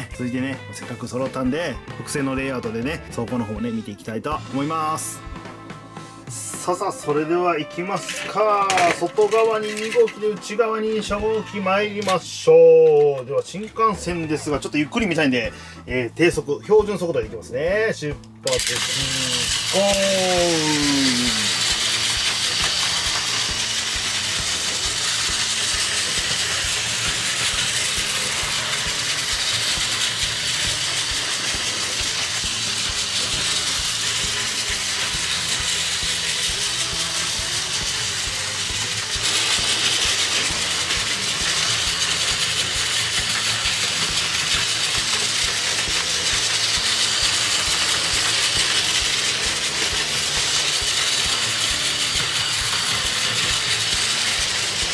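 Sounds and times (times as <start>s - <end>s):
toy train motors whirring: 0.0s - 17.1s, 18.1s - 54.9s
wheels rattling on plastic rails: 7.7s - 15.2s, 18.5s - 54.9s.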